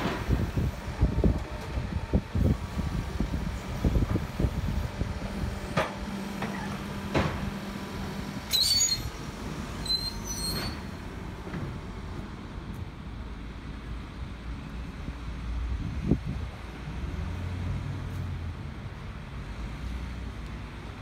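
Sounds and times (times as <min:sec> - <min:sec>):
diesel engine running: 0:00.0 - 0:19.8
high-pitched machine squeals: 0:08.5 - 0:09.1, 0:09.8 - 0:10.9.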